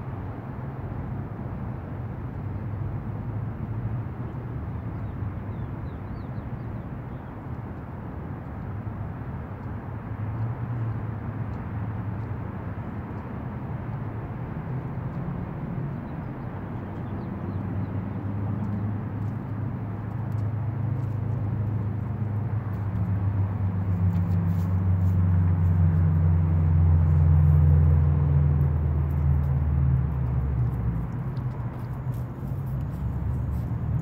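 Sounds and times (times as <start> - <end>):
low outdoor rumble: 8.5 - 34.0.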